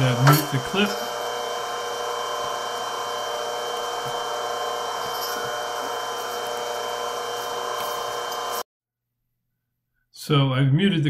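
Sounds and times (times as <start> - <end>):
milling machine cutting metal: 0.0 - 8.6.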